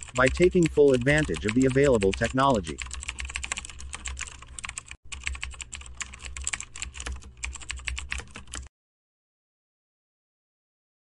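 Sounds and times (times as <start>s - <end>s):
rapid keyboard typing: 0.0s - 8.7s.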